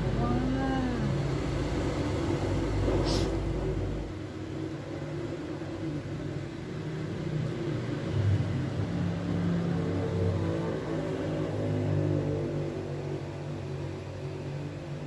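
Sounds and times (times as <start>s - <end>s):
brief high hiss: 3.0s - 3.4s.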